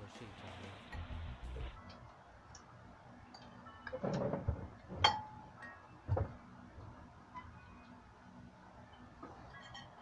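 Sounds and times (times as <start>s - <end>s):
cutlery clinking on ceramic plates: 9.4s - 10.0s.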